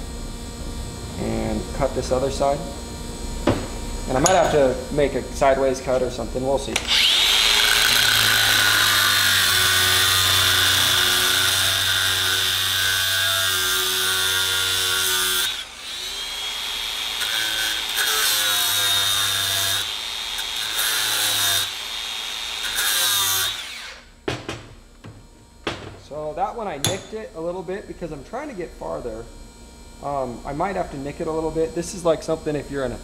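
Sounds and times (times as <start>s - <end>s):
angle grinder cutting metal: 6.8s - 24.0s.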